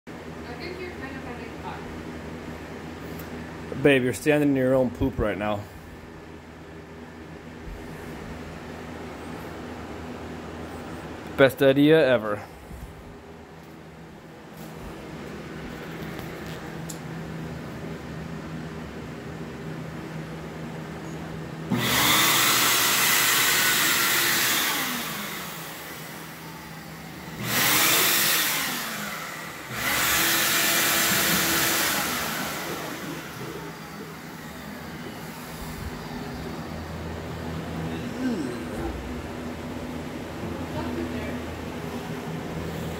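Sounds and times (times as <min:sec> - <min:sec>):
steady low hum: 0:00.1 - 0:21.8, 0:28.6 - 0:42.9
leaf blower air rush and whine: 0:20.8 - 0:42.9.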